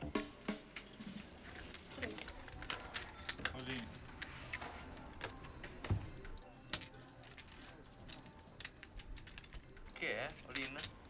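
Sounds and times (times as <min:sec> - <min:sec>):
poker chips clicking and clinking: 0:06.8 - 0:11.0.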